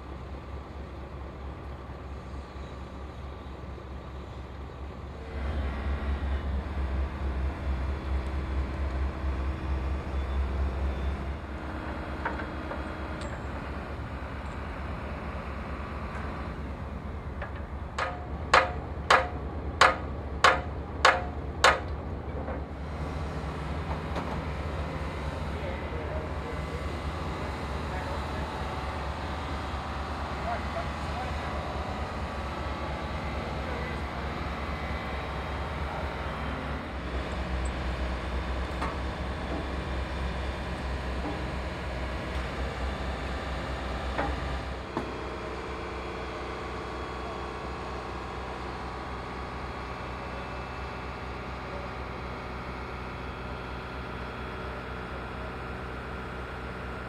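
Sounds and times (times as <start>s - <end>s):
crane diesel engine running: 0.0s - 57.0s
sharp knocks: 17.4s - 21.9s.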